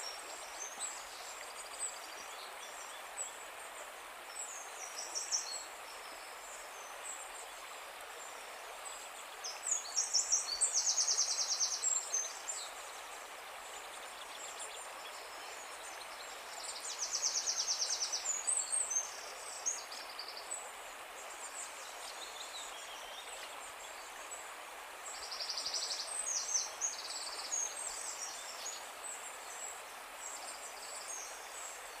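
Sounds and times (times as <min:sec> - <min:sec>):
steady background hiss: 0:00.0 - 0:32.0.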